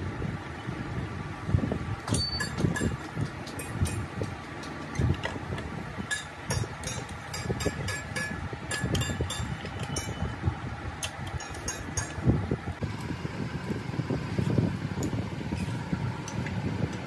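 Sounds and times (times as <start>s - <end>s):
metal tools clicking on bolts: 2.0s - 5.4s, 6.0s - 10.3s, 11.0s - 12.3s.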